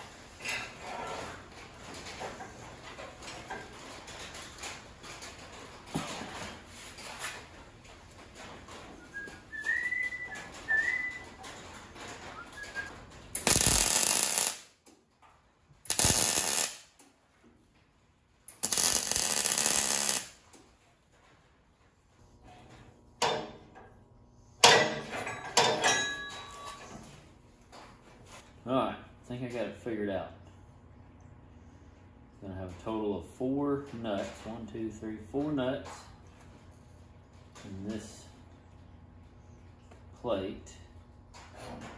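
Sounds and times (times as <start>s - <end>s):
welding arc crackle: 12.6s - 14.8s, 15.8s - 17.0s, 18.5s - 20.6s.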